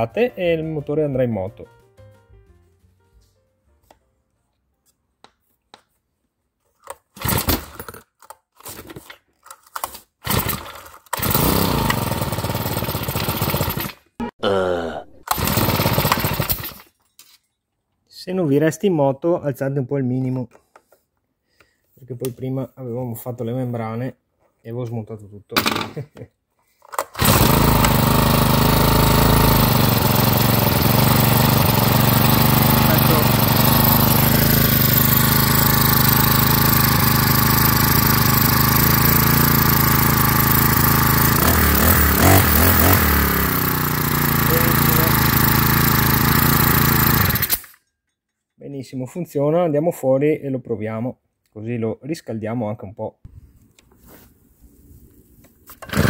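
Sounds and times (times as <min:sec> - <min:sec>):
recoil starter cord whirr: 0:07.2 - 0:08.0, 0:09.8 - 0:14.0, 0:15.3 - 0:16.9, 0:26.9 - 0:47.8, 0:55.7 - 0:56.0
small engine running: 0:10.2 - 0:14.0, 0:15.3 - 0:16.9, 0:27.0 - 0:47.8, 0:55.8 - 0:56.0.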